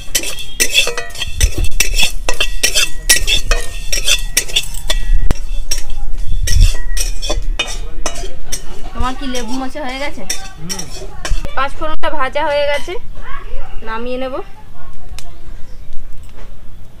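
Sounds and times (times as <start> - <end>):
metal spatula scraping metal pan: 0.0 - 11.6, 12.4 - 13.0.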